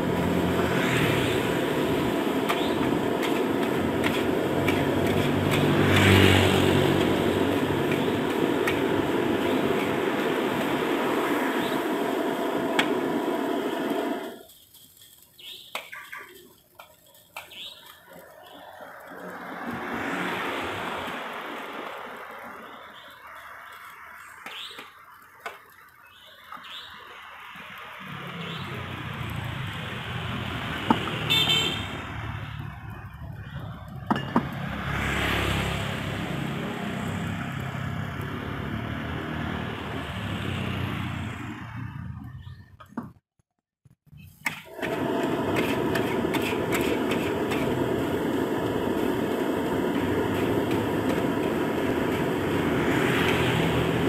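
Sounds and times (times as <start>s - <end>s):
gas burner rushing: 0.0s - 15.1s, 16.3s - 25.8s, 26.8s - 42.1s, 44.4s - 54.0s
fried rice sizzling: 0.0s - 41.3s, 44.1s - 54.0s
traffic passing: 0.0s - 43.2s, 44.1s - 54.0s
metal spatula scraping wok: 2.4s - 10.8s, 45.2s - 47.8s, 49.9s - 54.0s.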